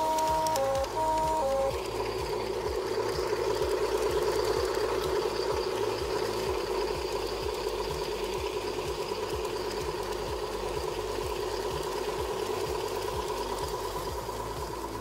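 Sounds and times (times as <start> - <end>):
two-note train horn: 0.0 - 2.7
light clicking of wheels: 0.0 - 15.0
model train motor humming: 0.0 - 15.0.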